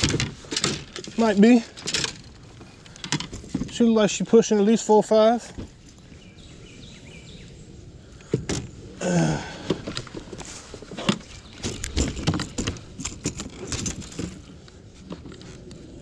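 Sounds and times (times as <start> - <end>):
person grunting: 9.0 - 9.8
fish thrashing with clicks and knocks: 9.6 - 14.4.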